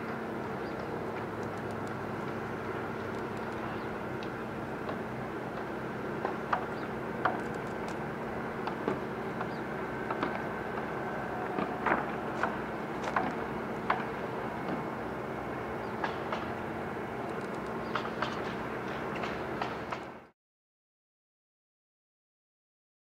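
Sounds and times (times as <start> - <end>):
mechanical motor hum: 0.0 - 20.3
light clicks: 17.3 - 18.4.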